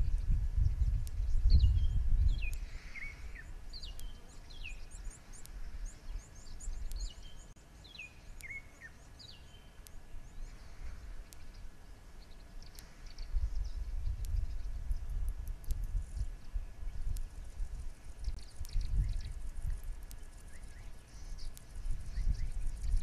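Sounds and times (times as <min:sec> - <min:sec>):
birds whistling downward notes: 0:00.0 - 0:15.1, 0:20.1 - 0:23.0.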